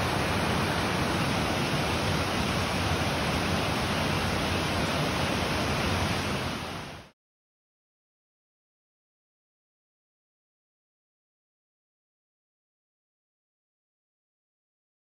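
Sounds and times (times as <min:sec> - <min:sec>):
stream water rushing: 0:00.0 - 0:07.1.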